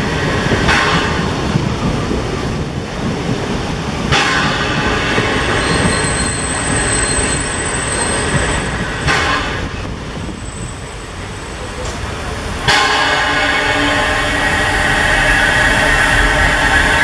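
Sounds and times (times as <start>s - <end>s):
train wheels rumbling over rails: 0.0s - 17.0s
high wheel squeal: 5.2s - 11.9s.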